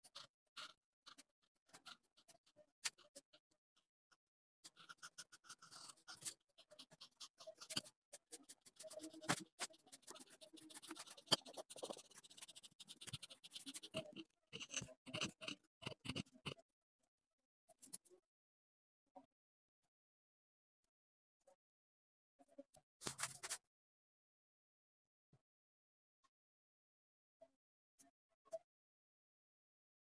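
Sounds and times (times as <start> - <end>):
marker scratching on paper: 0.0 - 3.3, 4.7 - 16.6.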